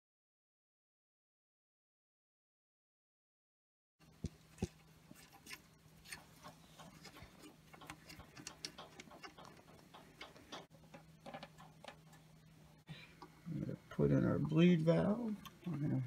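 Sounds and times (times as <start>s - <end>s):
faint low hum: 4.0s - 16.0s
small metal clicks and taps: 6.8s - 12.3s.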